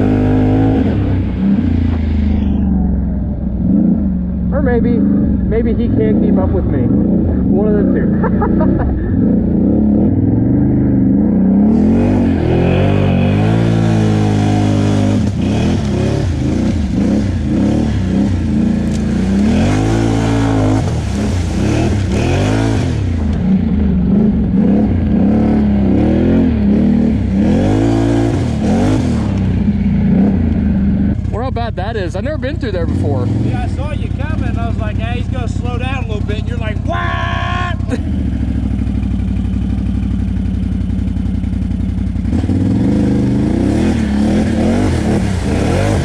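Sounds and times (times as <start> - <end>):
atv engine revving: 0.0 - 46.0.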